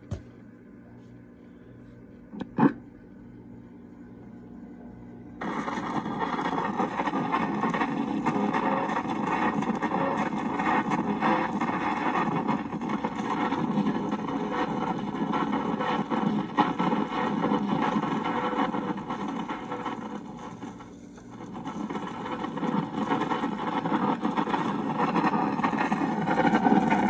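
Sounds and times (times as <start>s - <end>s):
lo-fi record playing through small speaker: 5.4s - 27.0s.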